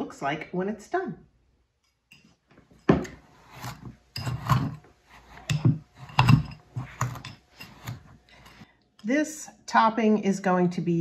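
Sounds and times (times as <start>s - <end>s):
pastry cutter scraping bowl: 3.2s - 8.6s.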